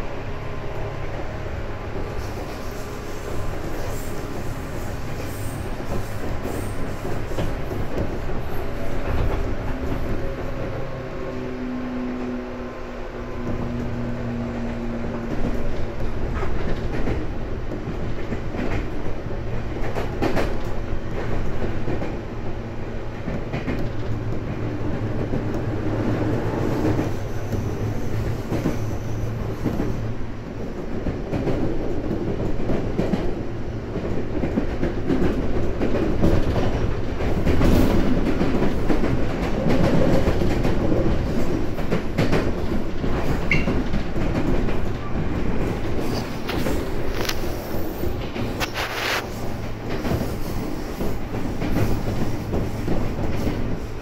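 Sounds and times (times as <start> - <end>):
train wheels clicking over rail joints: 15.1 - 22.2, 23.1 - 54.0.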